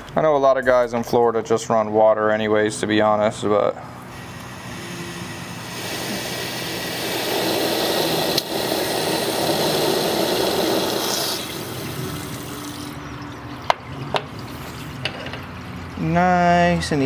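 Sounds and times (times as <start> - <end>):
water from hose filling radiator: 4.1 - 17.0.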